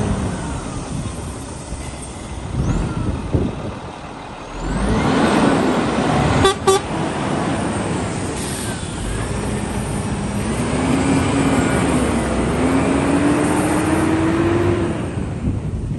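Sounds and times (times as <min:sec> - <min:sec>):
lorry diesel engine pulling away: 0:00.0 - 0:15.9
truck horn toots: 0:06.3 - 0:07.0.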